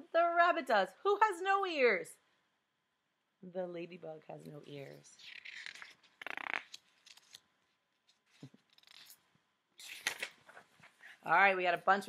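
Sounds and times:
book pages rustling: 4.7 - 11.0.

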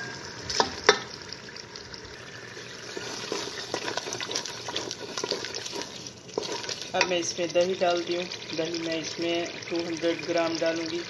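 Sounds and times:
spices sizzling in hot oil: 0.0 - 11.0
spoon scraping while stirring: 2.6 - 7.2.

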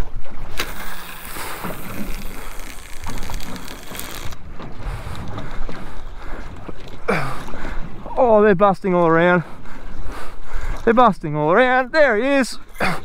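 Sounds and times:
water noise: 0.0 - 13.0
wind buffeting microphone: 4.2 - 8.2.

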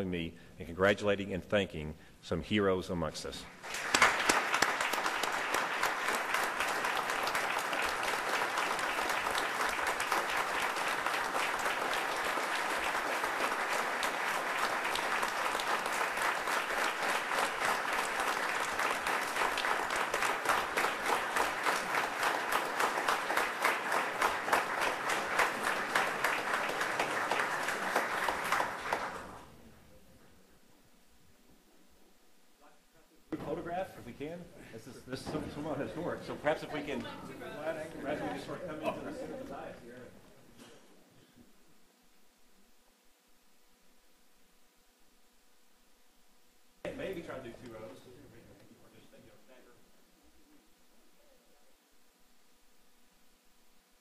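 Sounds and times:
crowd applauding: 3.6 - 29.5.

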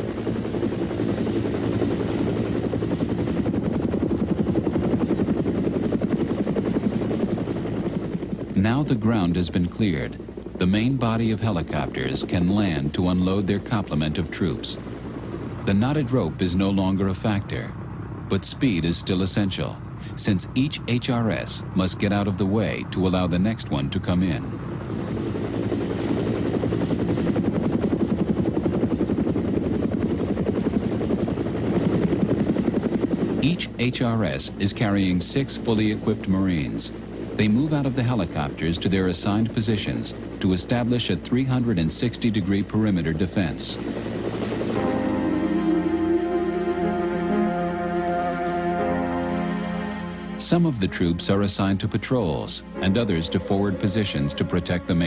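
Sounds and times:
helicopter engine running: 0.0 - 55.0
helicopter rotor chop: 0.0 - 55.0.

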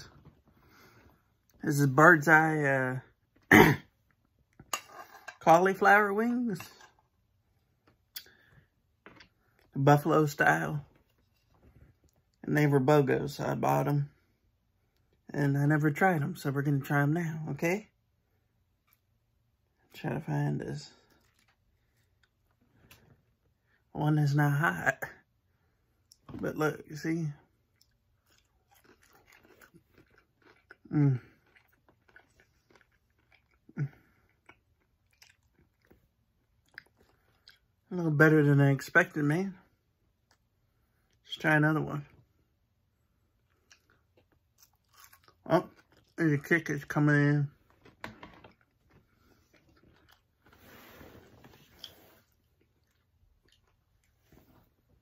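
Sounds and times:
faint chewing: 10.9 - 12.4, 20.9 - 23.6, 27.5 - 37.8, 43.0 - 46.2, 47.6 - 50.8, 51.4 - 54.8.

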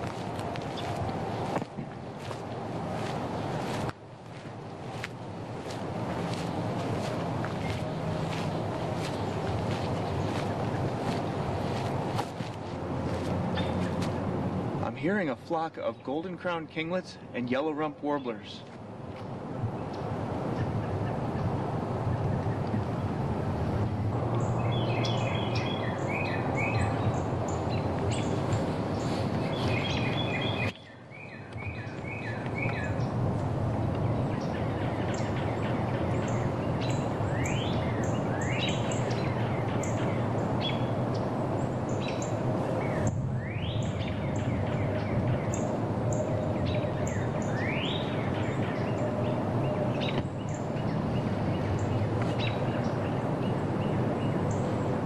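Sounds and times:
outdoor background noise: 0.0 - 55.0
small birds chipping and calling: 0.1 - 1.0, 5.6 - 12.5, 24.4 - 33.2, 34.0 - 54.8.

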